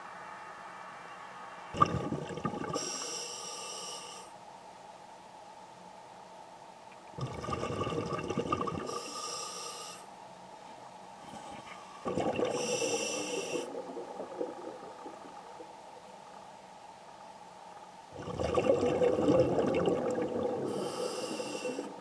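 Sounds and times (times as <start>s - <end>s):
diver breathing through regulator: 12.4s - 13.9s, 20.5s - 22.0s.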